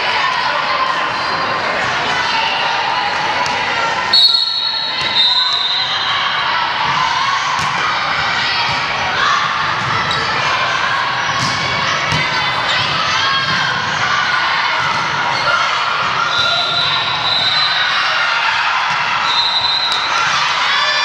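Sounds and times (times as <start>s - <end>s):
chatter and calls in a gym: 0.0s - 21.0s
referee's whistle: 4.1s - 6.2s, 16.3s - 18.0s, 19.2s - 20.2s.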